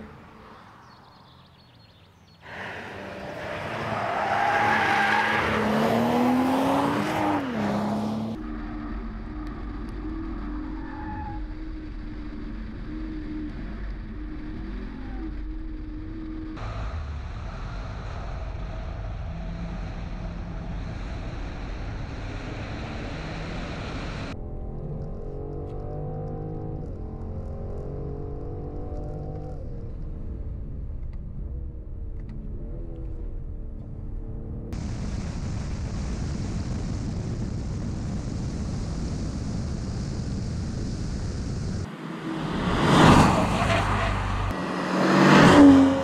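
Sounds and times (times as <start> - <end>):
car engine: 0.0 - 35.3, 38.2 - 46.0
tyre and road noise: 0.0 - 46.0
car engine accelerating hard: 2.5 - 10.6, 41.8 - 46.0.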